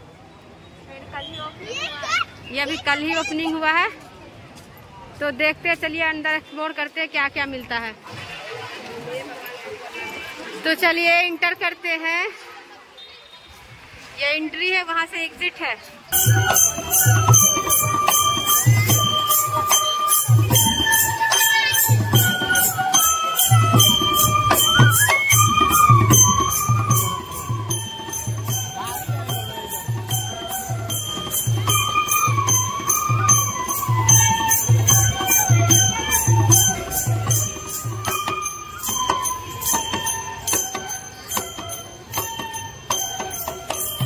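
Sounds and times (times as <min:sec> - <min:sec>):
bamboo flutes playing melody: 0:16.1 - 0:44.0
jingling percussion: 0:16.1 - 0:44.0
barrel drum beat: 0:16.2 - 0:44.0.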